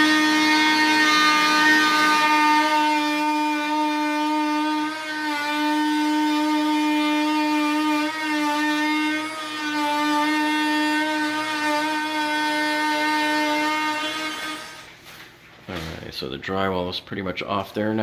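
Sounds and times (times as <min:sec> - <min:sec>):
oscillating multi-tool cutting drywall: 0:00.0 - 0:14.9.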